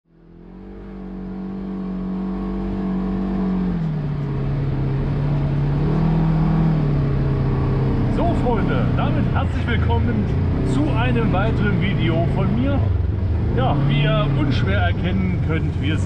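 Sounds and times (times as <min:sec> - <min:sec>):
engine running at low revs: 0:00.1 - 0:16.0.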